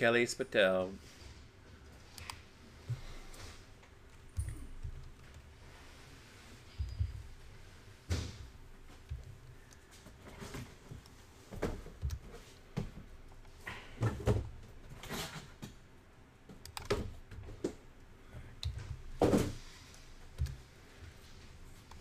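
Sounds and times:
mouse and keyboard clicks: 0:16.6 - 0:17.0.

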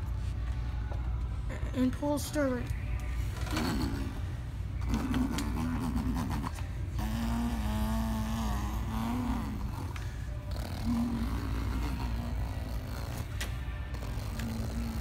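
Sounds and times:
boy imitating engine with voice: 0:03.5 - 0:13.3, 0:13.9 - 0:15.0.

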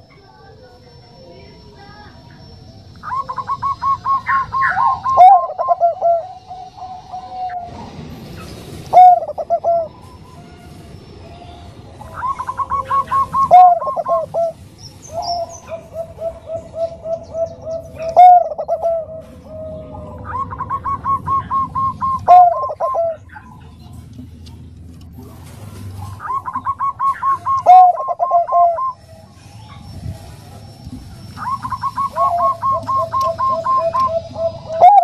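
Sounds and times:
dove cooing: 0:03.0 - 0:08.0, 0:08.9 - 0:10.1, 0:12.0 - 0:23.5, 0:26.0 - 0:35.0.

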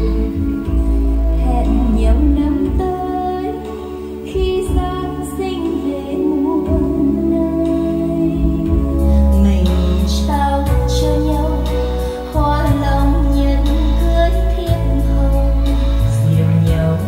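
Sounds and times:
strong bass line: 0:00.0 - 0:03.2, 0:06.7 - 0:17.0
song over loudspeakers: 0:00.0 - 0:17.0
woman singing: 0:00.0 - 0:17.0.

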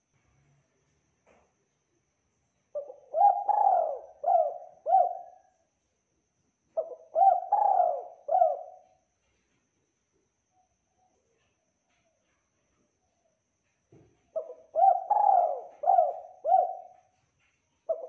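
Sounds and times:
dove cooing: 0:02.8 - 0:05.5, 0:06.8 - 0:08.9, 0:14.3 - 0:17.2.

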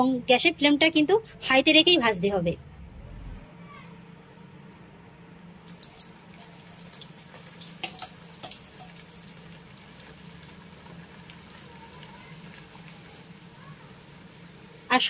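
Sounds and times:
food sizzling in hot oil: 0:05.7 - 0:15.0.

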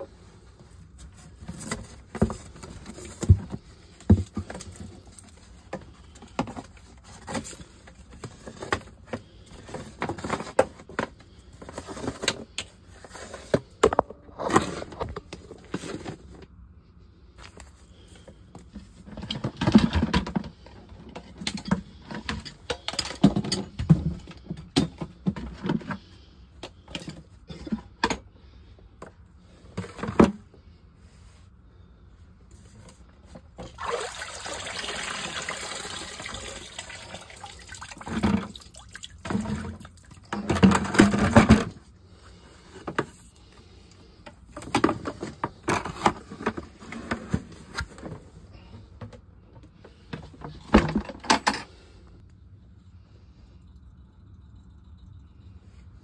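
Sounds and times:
water rushing in a sump pit: 0:33.6 - 0:40.9.

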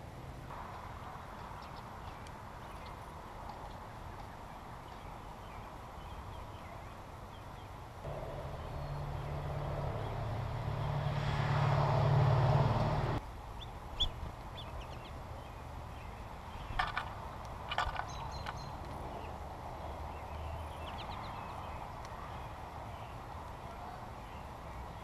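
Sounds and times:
low motor hum: 0:08.1 - 0:13.2.

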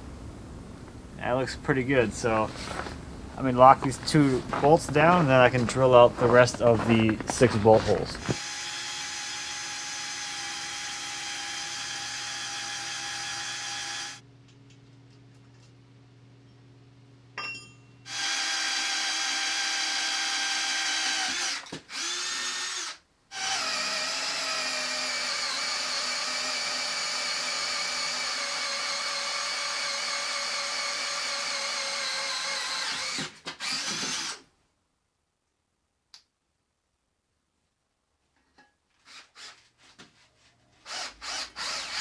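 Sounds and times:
drill boring through steel: 0:08.3 - 0:14.2, 0:18.1 - 0:34.4, 0:40.9 - 0:42.0.

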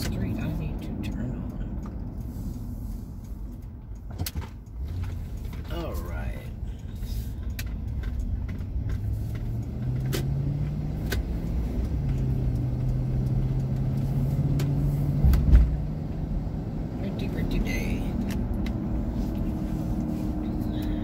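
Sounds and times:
car engine accelerating: 0:00.0 - 0:21.0
road noise inside car: 0:00.0 - 0:21.0
low thump: 0:15.2 - 0:15.8.

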